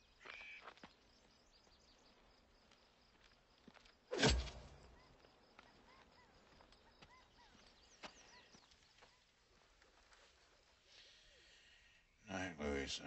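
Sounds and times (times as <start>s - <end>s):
pitchfork thumping into hay: 4.2s - 4.8s.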